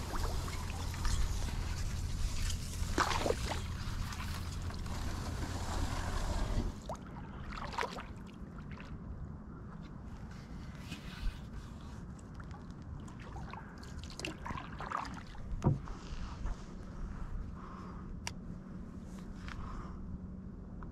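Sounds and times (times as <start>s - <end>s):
water swishing: 0.0s - 9.0s, 12.9s - 15.6s.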